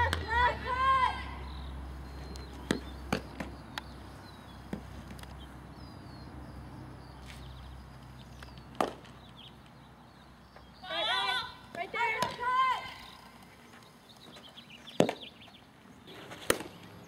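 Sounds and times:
balls smacking into leather gloves: 8.4s - 9.2s.

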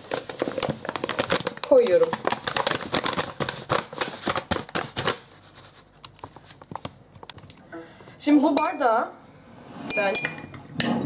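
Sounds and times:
paper bag crinkling: 0.0s - 7.0s.

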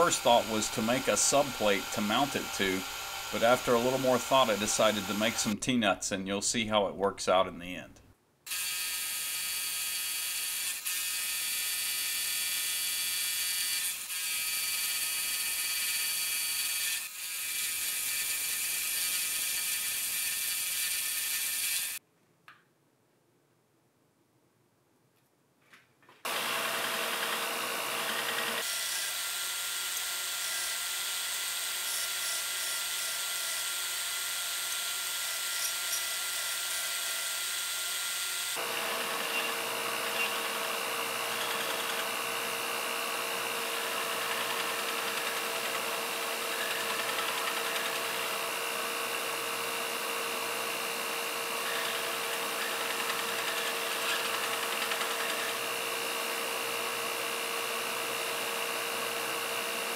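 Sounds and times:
belt grinder grinding steel: 0.0s - 5.6s, 8.5s - 22.0s, 26.3s - 59.9s.

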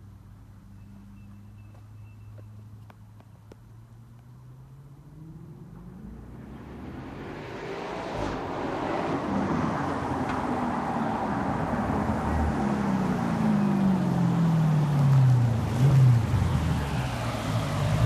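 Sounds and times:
car engine revs falling: 4.1s - 18.0s.

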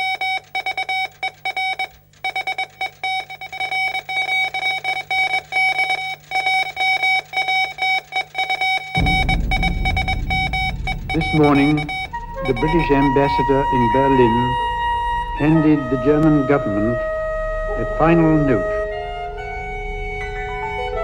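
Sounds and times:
morse code beeping tone: 0.0s - 17.0s
low hum: 9.0s - 21.0s
low rumbling noise: 9.0s - 21.0s.

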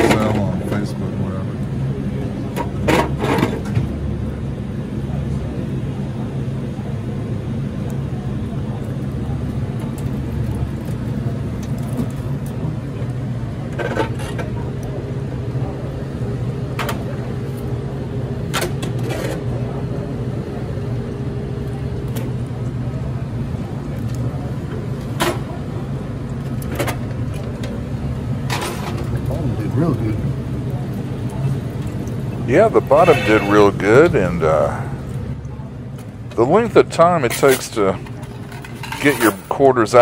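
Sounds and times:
low machinery hum: 0.0s - 40.0s
vending machine parts clanking: 37.2s - 39.6s.

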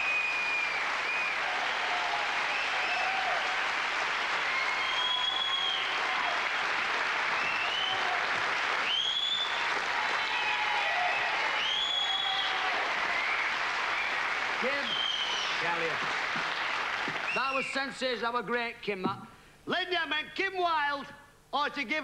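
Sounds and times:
high whistles: 0.0s - 3.1s, 4.4s - 6.0s, 7.3s - 8.2s, 8.8s - 15.8s, 17.2s - 17.7s
audience applauding: 0.0s - 17.9s.

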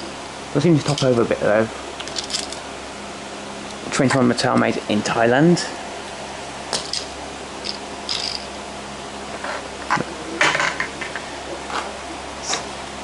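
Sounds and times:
toy cars clicking and rustling: 2.1s - 2.6s, 7.6s - 8.4s.

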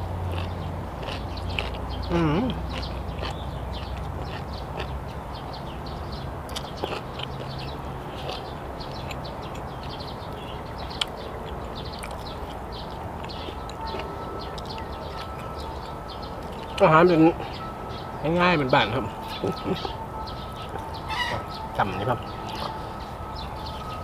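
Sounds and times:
person chewing food: 0.2s - 5.3s, 6.4s - 16.8s, 19.2s - 21.5s.

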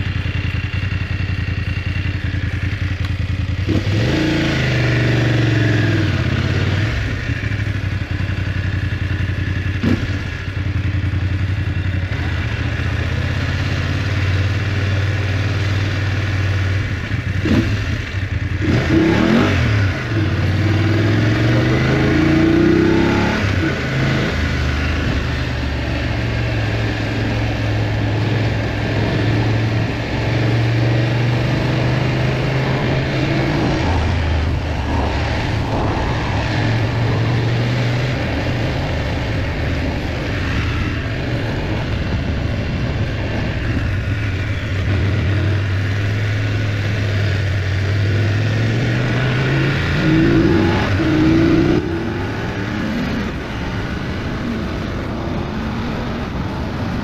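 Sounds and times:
motorcycle engine running: 0.0s - 57.0s
wind noise: 18.6s - 57.0s.

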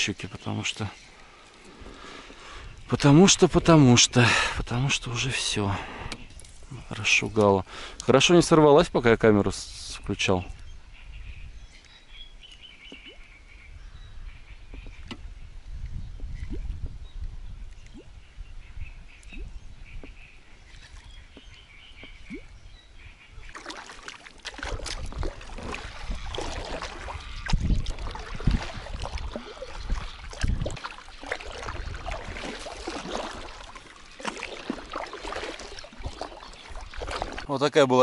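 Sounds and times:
crackling and rustling through reeds: 23.1s - 37.6s
paddle strokes splashing: 23.4s - 37.7s.

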